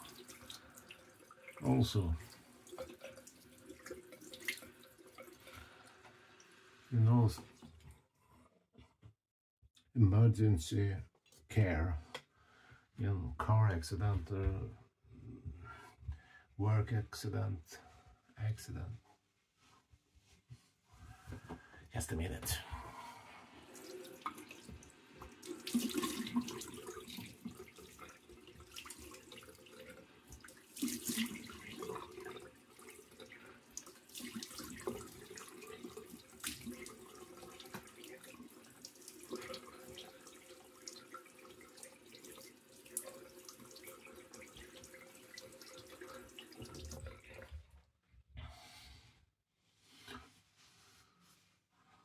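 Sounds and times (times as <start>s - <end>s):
water splashing on face: 23.7s - 29.5s, 30.4s - 33.0s, 33.8s - 47.5s.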